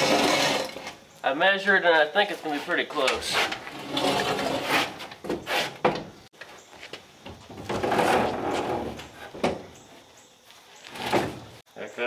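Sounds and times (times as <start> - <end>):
rubbing and scraping: 0.0 - 1.1, 2.2 - 6.3, 7.4 - 10.0
knocks and bumps: 3.0 - 6.3, 6.9 - 9.8.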